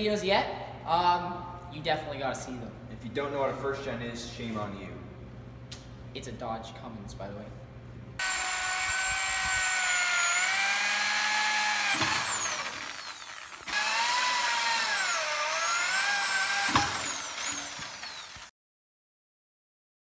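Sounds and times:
electric drill whining: 0:08.2 - 0:18.5.

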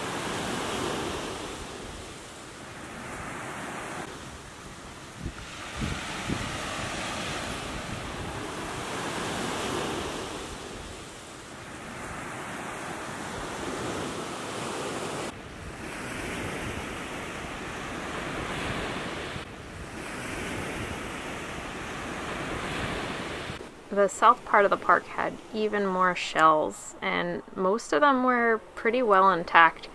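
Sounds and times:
small waves breaking on beach: 0:00.0 - 0:25.8
wind buffeting microphone: 0:04.4 - 0:11.1.

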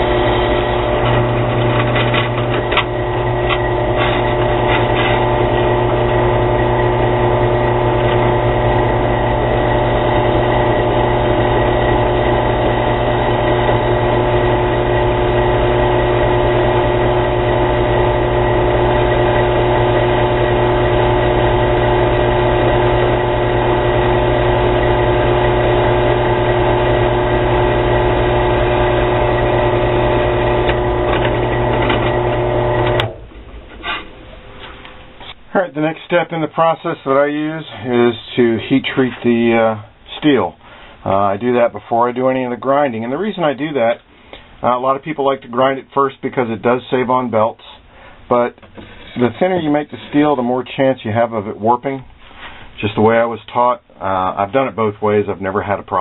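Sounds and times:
drill press drilling steel: 0:00.0 - 0:35.5, 0:48.7 - 0:50.5.

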